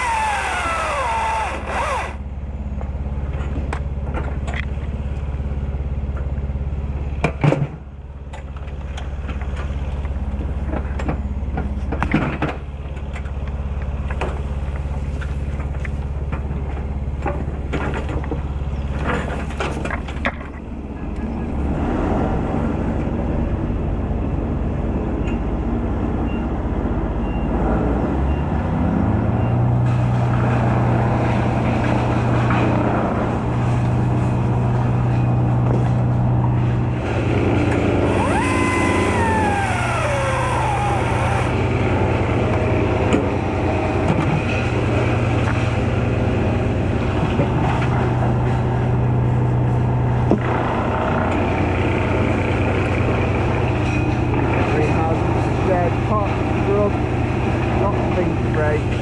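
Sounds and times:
lift engine running: 0:00.0 - 0:07.2, 0:30.5 - 0:59.0
sharp knocks and crackles: 0:07.2 - 0:21.3, 0:47.0 - 0:48.9, 0:49.7 - 0:51.5.

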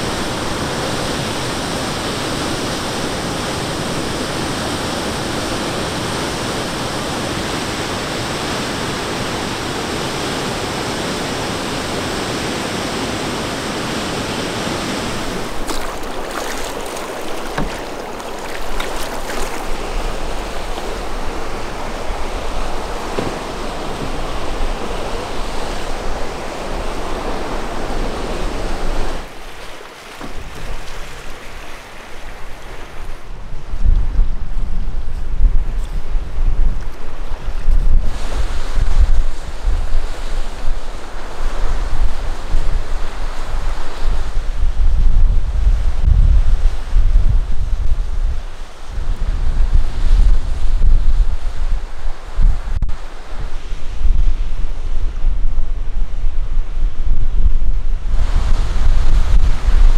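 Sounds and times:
wind gusting on microphone: 0:00.0 - 0:29.6, 0:30.2 - 0:59.9
lake waves: 0:00.0 - 0:33.8, 0:35.8 - 0:44.7
waterfall pouring: 0:15.3 - 0:20.2.

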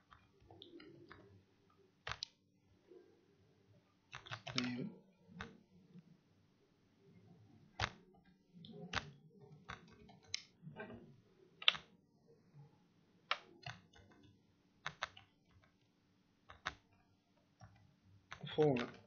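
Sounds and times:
computer keyboard keystrokes: 0:02.0 - 0:02.4, 0:04.1 - 0:04.8, 0:07.8 - 0:08.0, 0:08.9 - 0:10.5, 0:11.6 - 0:11.9, 0:13.3 - 0:15.8, 0:16.5 - 0:16.9, 0:17.6 - 0:19.0.

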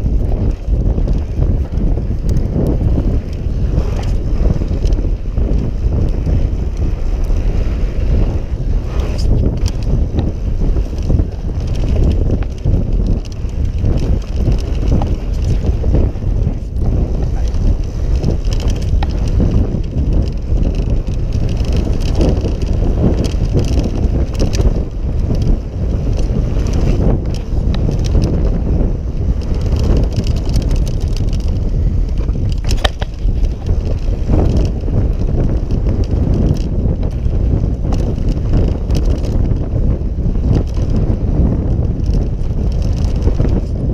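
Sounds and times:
bike knocks and rattles: 0:00.0 - 0:43.9
tyres crunching on dirt trail: 0:00.0 - 0:43.9
wind buffeting microphone: 0:00.0 - 0:43.9.

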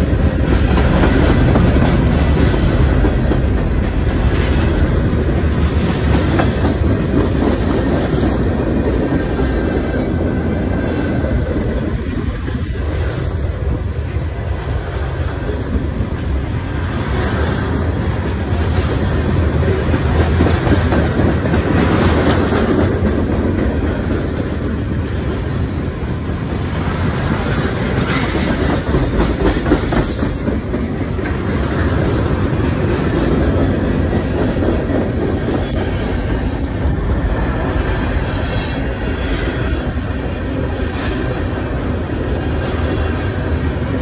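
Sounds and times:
freight train rumbling: 0:00.0 - 0:44.0
wheels clicking over rail joints: 0:26.8 - 0:37.8.

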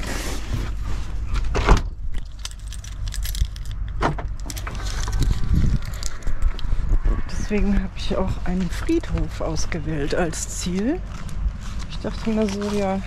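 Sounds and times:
low handling rumble: 0:00.0 - 0:13.0.

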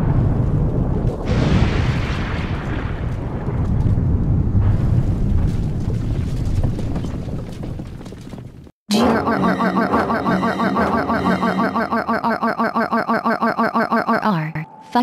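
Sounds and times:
explosion blast: 0:00.0 - 0:07.8.

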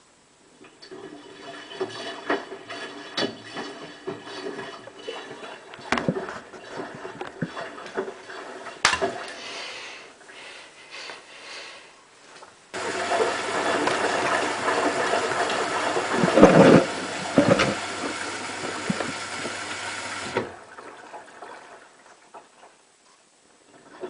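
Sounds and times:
low electrical hum: 0:00.0 - 0:24.0
water rushing through washing machine: 0:00.6 - 0:09.4, 0:12.8 - 0:22.8.

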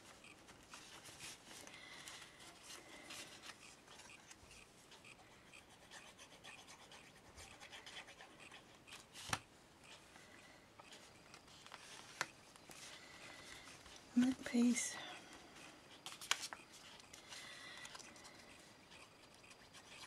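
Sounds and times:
paper rustling and scraping: 0:11.4 - 0:13.0.

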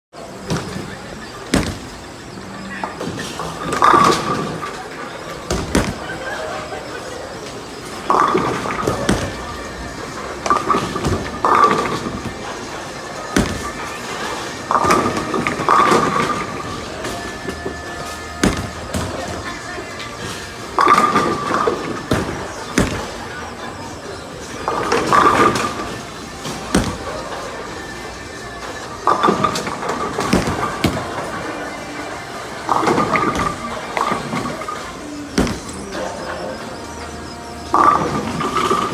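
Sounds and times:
bowling balls thudding: 0:00.3 - 0:38.9
sharp knocks from balls: 0:00.4 - 0:02.0, 0:05.4 - 0:06.0, 0:13.3 - 0:13.9, 0:18.4 - 0:19.4, 0:20.8 - 0:23.2, 0:24.6 - 0:27.1, 0:29.0 - 0:31.3, 0:35.4 - 0:35.9
bowling pins crashing: 0:02.9 - 0:06.8, 0:07.4 - 0:38.9
background music: 0:03.3 - 0:38.9.

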